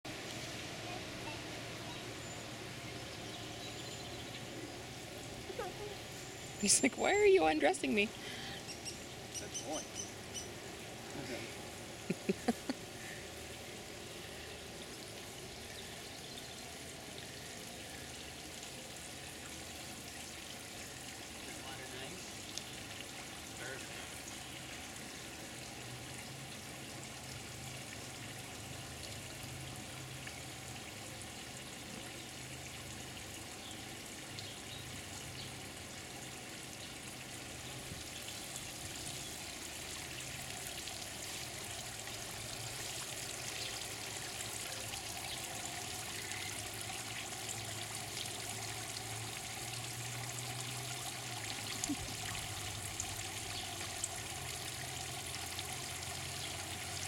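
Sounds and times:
water splashing into pool: 37.2s - 57.0s.

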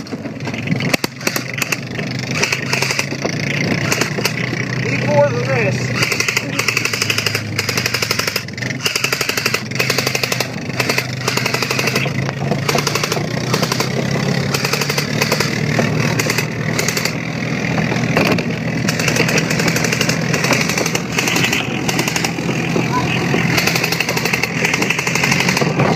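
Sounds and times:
engine humming: 0.0s - 25.9s
airsoft rifles firing bursts: 0.9s - 3.2s, 3.8s - 17.2s, 18.8s - 25.9s.

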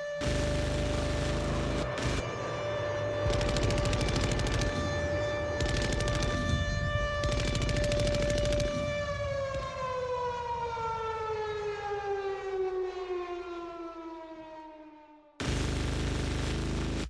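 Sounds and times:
siren winding down: 0.0s - 15.3s
loud static burst: 0.2s - 2.3s, 15.4s - 17.0s.

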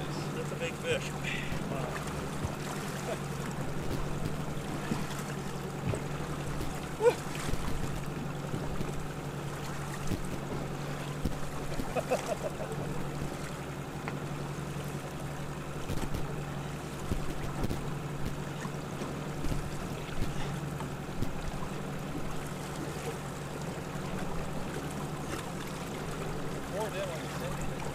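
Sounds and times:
outboard engine running: 0.0s - 27.9s
water noise: 0.0s - 27.9s
wind: 0.0s - 27.9s
knocks from gear in boat: 1.5s - 13.4s, 15.8s - 16.3s, 17.0s - 21.5s.

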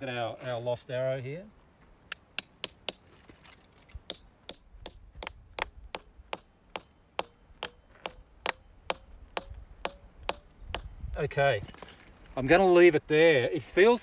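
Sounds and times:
hammer striking metal piton: 4.1s - 10.9s.

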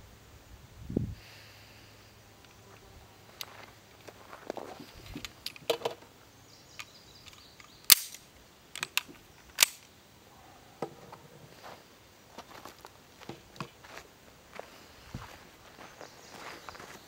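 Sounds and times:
pistol clicks and clacks: 6.8s - 9.9s.

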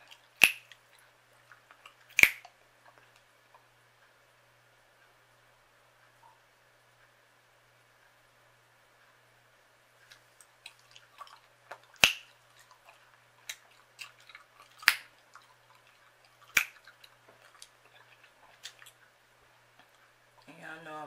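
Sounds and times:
wet mouth clicks chewing gum: 0.0s - 2.5s, 10.0s - 19.0s
sharp gum cracks: 0.1s - 0.9s, 1.5s - 2.5s, 10.6s - 19.0s.

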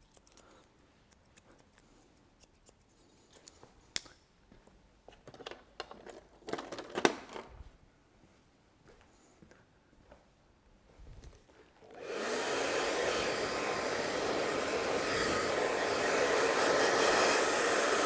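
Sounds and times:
scissors snipping hair: 0.0s - 4.2s.

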